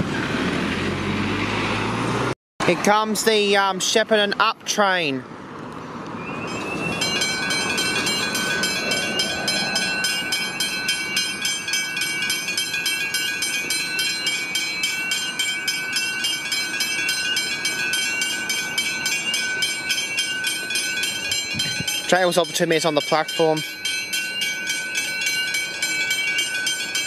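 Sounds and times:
train running past: 0:06.0 - 0:27.0
level crossing bells ringing: 0:06.5 - 0:27.0.

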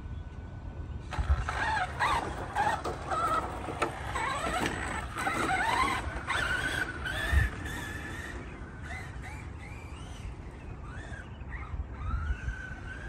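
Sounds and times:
electric motor whining: 0:01.1 - 0:13.0
tyres crunching over gravel: 0:01.2 - 0:09.0.

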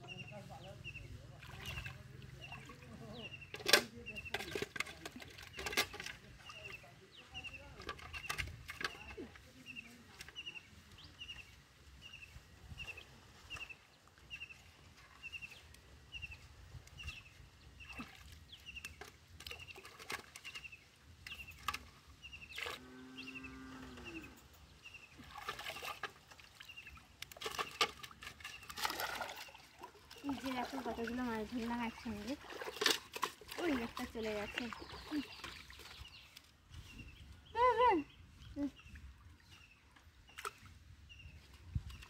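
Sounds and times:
hands splashing in pond water: 0:01.3 - 0:02.8, 0:12.8 - 0:22.8, 0:25.0 - 0:36.8
bird chirping: 0:33.6 - 0:42.0.

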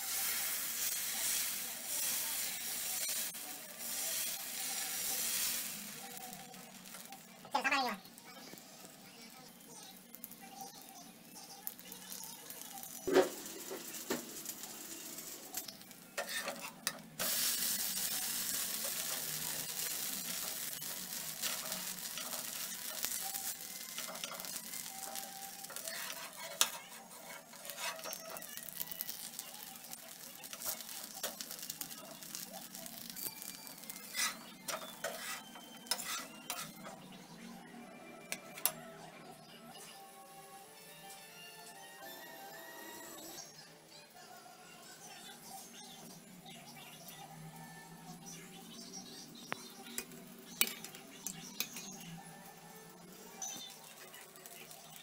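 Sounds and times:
batter sizzling on a griddle: 0:00.0 - 0:37.4, 0:44.2 - 0:55.0
steel spatula scraping griddle: 0:12.8 - 0:37.0.

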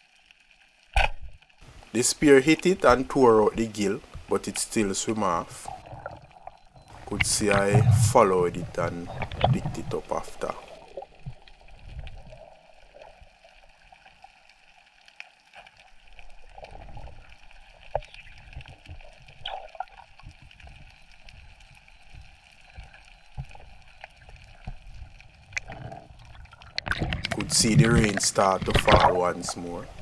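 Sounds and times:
small clicks and crackles: 0:00.0 - 0:01.9, 0:08.9 - 0:30.0
water sloshing and gurgling: 0:05.2 - 0:14.8, 0:15.5 - 0:30.0.

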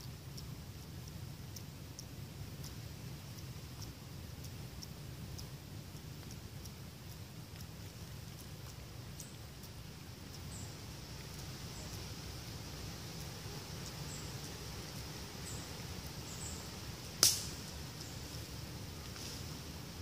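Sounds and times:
faint high-pitched chirps: 0:08.3 - 0:17.0, 0:17.6 - 0:18.6
sharp click: 0:17.2 - 0:17.7.

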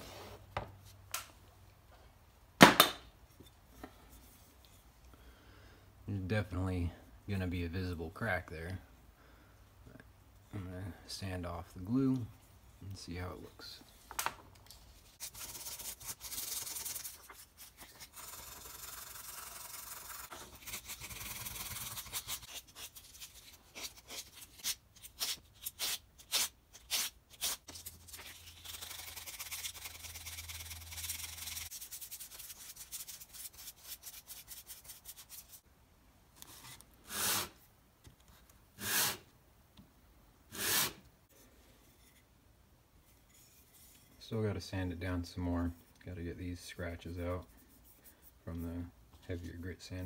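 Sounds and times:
sandpaper rubbing on wood: 0:15.2 - 0:35.6, 0:37.1 - 0:37.6, 0:38.8 - 0:39.2, 0:40.5 - 0:41.0.

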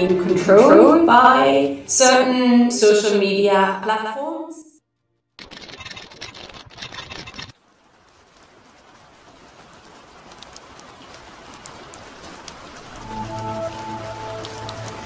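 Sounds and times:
soft hiss with light ticks: 0:07.4 - 0:15.0.

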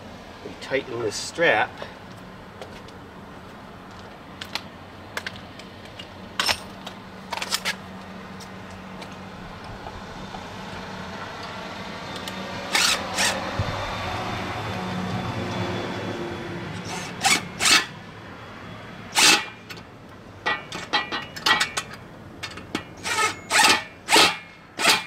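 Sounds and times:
handling clicks and taps: 0:03.9 - 0:10.0
cordless drill bursts: 0:23.0 - 0:25.0.

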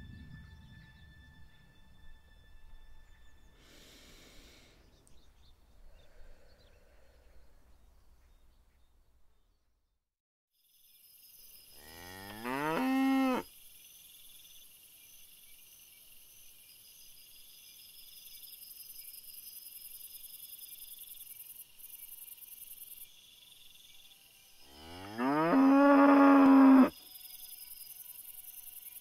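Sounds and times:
crickets chirping: 0:10.6 - 0:29.0
cow mooing: 0:11.8 - 0:13.5, 0:24.7 - 0:26.9.

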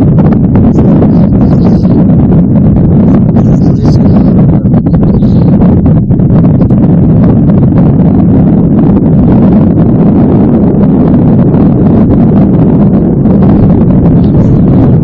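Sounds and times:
wind buffeting microphone: 0:00.0 - 0:15.0.

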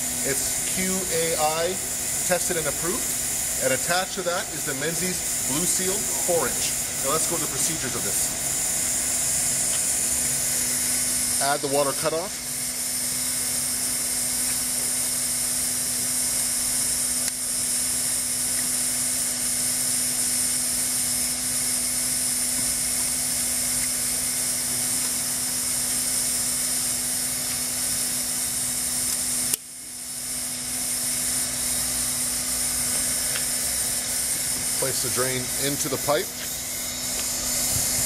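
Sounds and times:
machine hiss: 0:00.0 - 0:38.0
click: 0:29.1 - 0:29.6.

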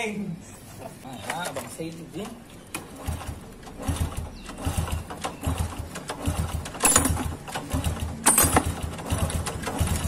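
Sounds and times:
engine kick start thuds: 0:02.7 - 0:10.0.

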